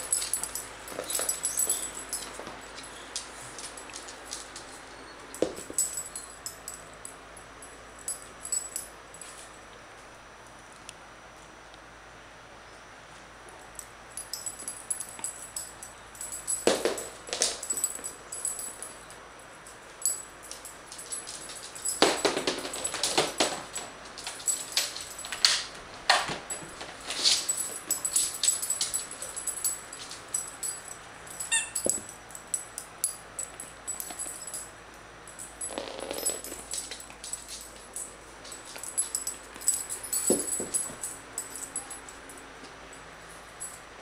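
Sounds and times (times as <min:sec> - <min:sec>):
rubber squeak toy squeaking: 0:31.5 - 0:31.8.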